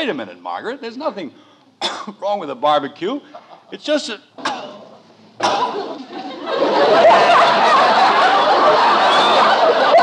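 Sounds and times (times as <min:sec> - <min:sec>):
studio audience laughing: 0:05.6 - 0:10.0.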